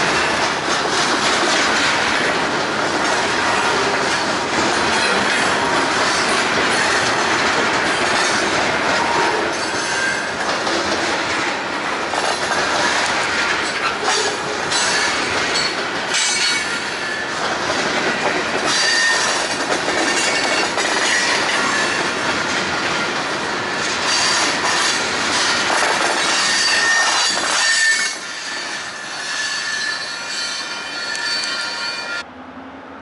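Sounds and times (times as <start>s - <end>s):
train wheels rumbling on rail: 0.0s - 32.8s
high-pitched wheel squeal: 26.3s - 32.2s.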